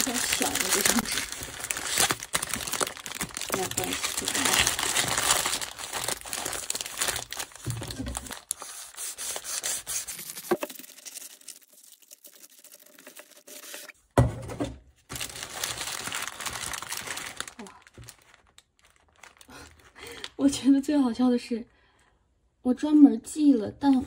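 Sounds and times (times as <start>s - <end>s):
packaging crinkling and rustling: 0.0s - 13.9s, 15.1s - 20.3s.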